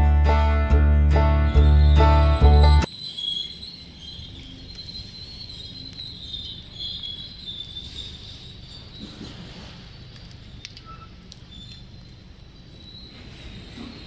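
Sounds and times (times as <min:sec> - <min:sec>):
insects chirring: 0:02.8 - 0:14.0.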